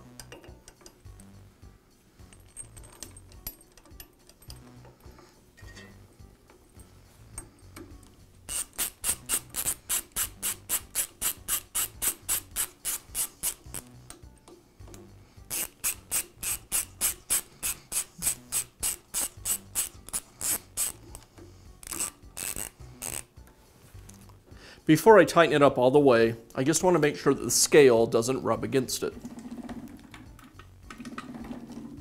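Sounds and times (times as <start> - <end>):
small ratchet wrench clicking: 8.5 - 14.2, 15.5 - 23.3.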